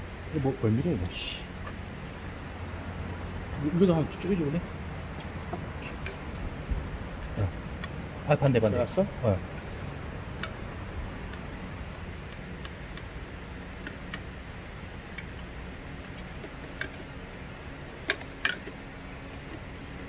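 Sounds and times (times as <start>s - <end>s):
steady low hum: 0.0s - 20.0s
light clicks and taps on machine parts: 5.2s - 6.5s, 16.1s - 17.4s.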